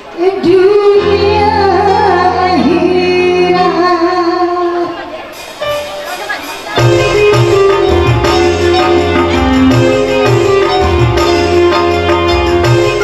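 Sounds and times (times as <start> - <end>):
woman singing: 0.1 - 5.2
instrumental accompaniment: 0.1 - 13.0.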